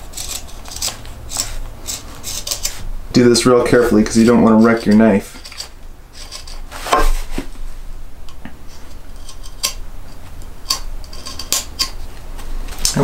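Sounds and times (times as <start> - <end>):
knife cutting wood: 0.0 - 2.8.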